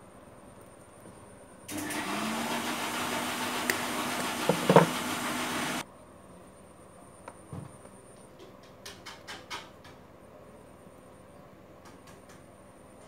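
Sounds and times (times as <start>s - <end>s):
handheld power tool whirring: 1.7s - 5.8s.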